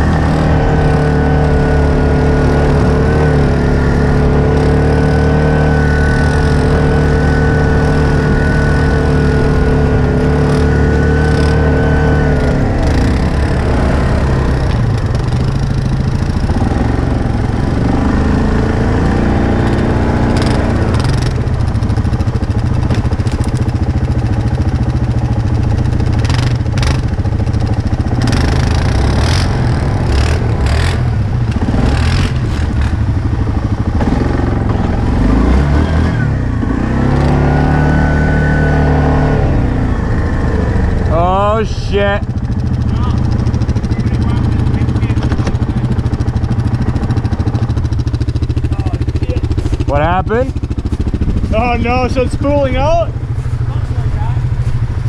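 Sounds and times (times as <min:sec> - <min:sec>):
atv engine running: 0:00.0 - 0:55.0.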